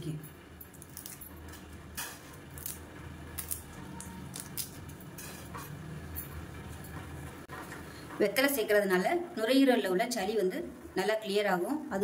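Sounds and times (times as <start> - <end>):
leaves tearing and rustling: 2.5 - 2.8, 3.4 - 4.9.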